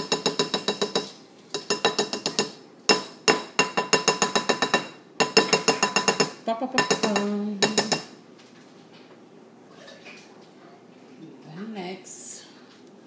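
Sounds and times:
measuring cup tapping a bowl: 0:00.0 - 0:08.2.

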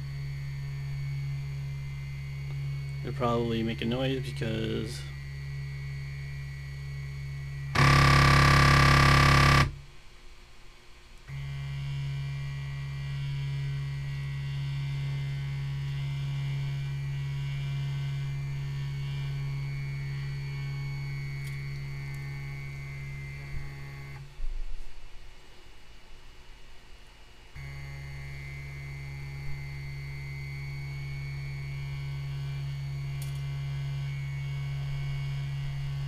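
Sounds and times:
buzzy motor burst: 0:07.7 - 0:09.8
stepper motors humming: 0:07.7 - 0:09.8.

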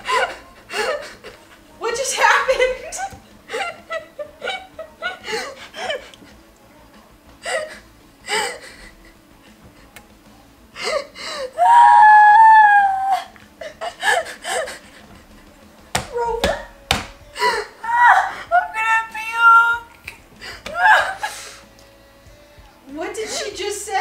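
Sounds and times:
women laughing: 0:00.0 - 0:06.4, 0:07.4 - 0:10.0, 0:10.8 - 0:16.7, 0:17.4 - 0:18.8, 0:20.1 - 0:21.6
high-pitched squeal of laughter: 0:11.6 - 0:14.7, 0:20.8 - 0:21.4.

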